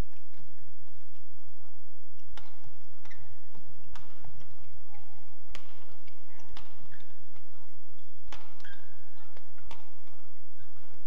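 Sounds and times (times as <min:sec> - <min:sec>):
rackets hitting shuttlecock: 0:00.0 - 0:01.2, 0:02.2 - 0:11.0
shoes squeaking on court: 0:02.2 - 0:11.0.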